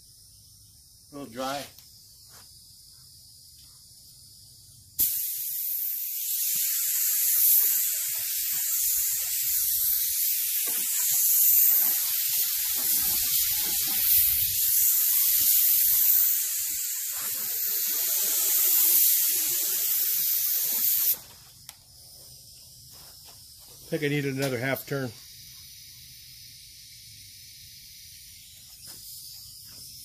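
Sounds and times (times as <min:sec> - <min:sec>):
spray gun air hiss: 0:04.9 - 0:21.2, 0:23.1 - 0:30.0.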